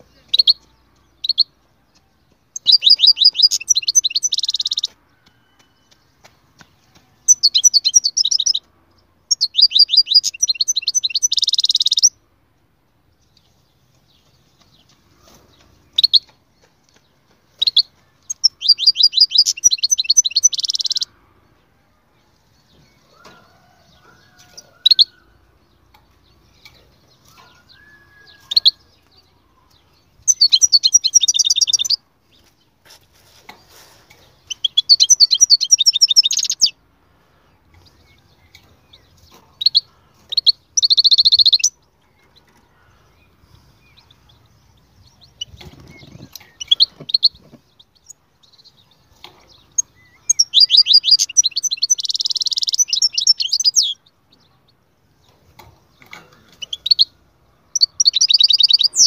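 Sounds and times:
bird singing fast twittering trills: 2.6 - 4.9, 7.3 - 8.6, 9.3 - 12.2, 17.6 - 21.1, 29.6 - 32.0, 34.5 - 36.8, 37.9 - 41.8, 43.1 - 54.0, 56.6 - 59.0.

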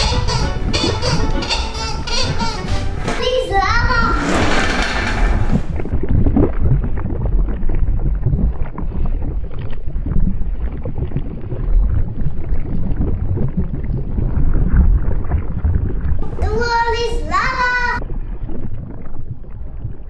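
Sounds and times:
loud low rumble with crackling: 3.8 - 16.4.

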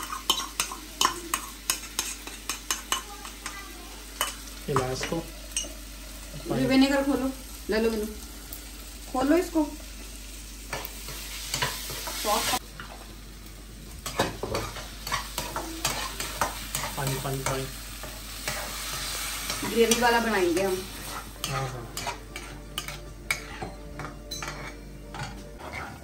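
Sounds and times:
spoon scraping pan: 0.0 - 3.6, 14.0 - 26.0
food sizzling in hot oil: 0.0 - 26.0.

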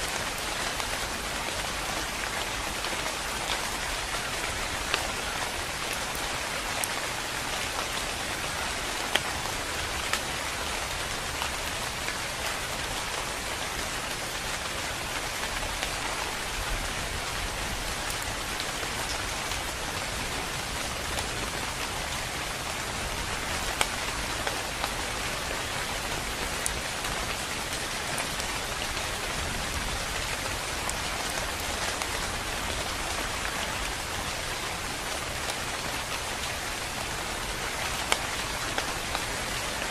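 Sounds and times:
rain on leafy trees: 0.0 - 39.9.

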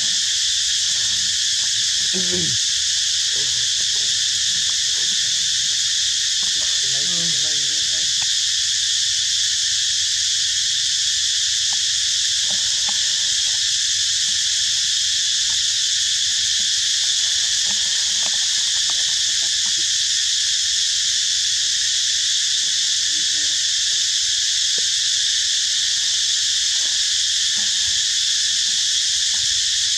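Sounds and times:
insect chorus drone: 0.0 - 29.9.

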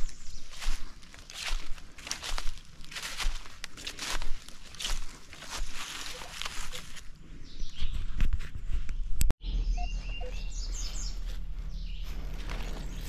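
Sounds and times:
birds chirping: 0.0 - 8.2, 8.8 - 13.0
footsteps outdoors: 0.0 - 13.0
steady low rumble: 9.4 - 13.0.

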